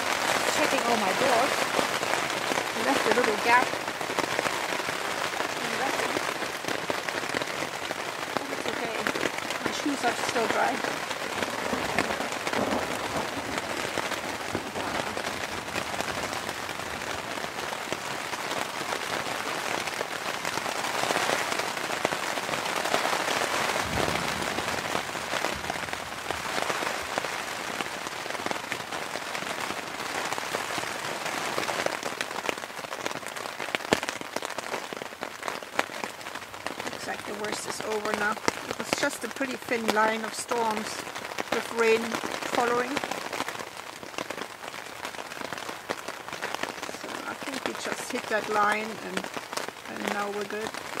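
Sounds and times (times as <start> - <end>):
wind gusts: 0.0 - 32.4
rain pattering on tent: 0.0 - 51.0.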